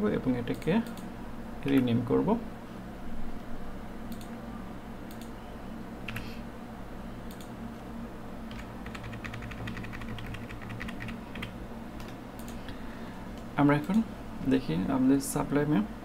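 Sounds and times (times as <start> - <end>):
low steady hum: 0.0 - 16.0
keyboard typing: 8.5 - 12.6.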